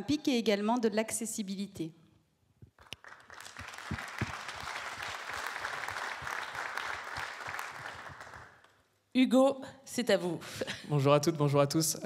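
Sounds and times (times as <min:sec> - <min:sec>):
audience applauding: 0:02.8 - 0:08.7.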